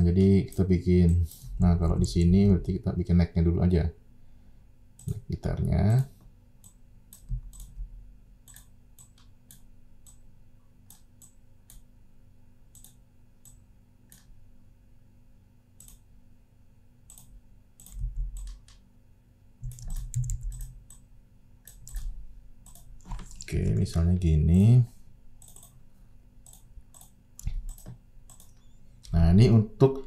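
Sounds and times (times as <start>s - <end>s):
computer mouse clicking: 6.6s - 7.8s, 8.4s - 10.2s, 10.9s - 11.9s, 12.7s - 14.3s, 15.8s - 16.0s, 17.1s - 18.8s, 19.6s - 21.0s, 21.6s - 23.5s, 25.4s - 25.8s, 26.4s - 28.8s.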